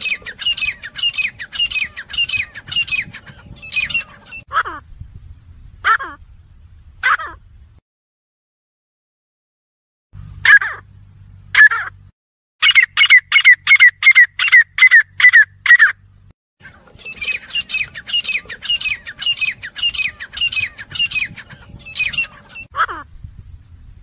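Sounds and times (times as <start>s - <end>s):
francolins calling: 0.0s - 4.8s, 12.6s - 16.0s, 16.6s - 23.1s.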